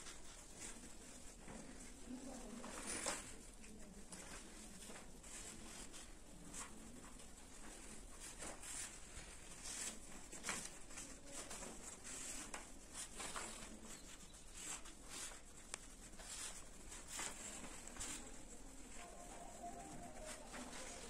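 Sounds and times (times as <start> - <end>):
paper rustling: 0.0 - 21.0
felt-tip pen scratching: 2.6 - 21.0.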